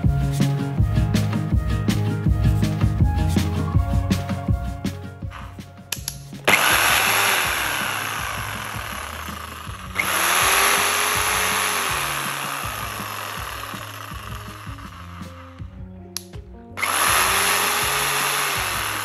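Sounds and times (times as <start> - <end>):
jigsaw motor running: 6.5 - 15.7, 16.8 - 19.0.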